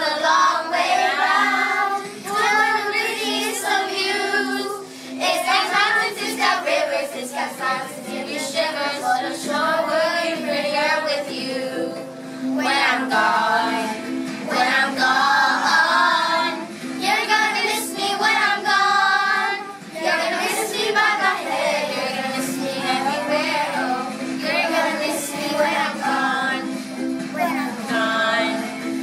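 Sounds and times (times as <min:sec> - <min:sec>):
children singing: 0:00.0 - 0:26.7.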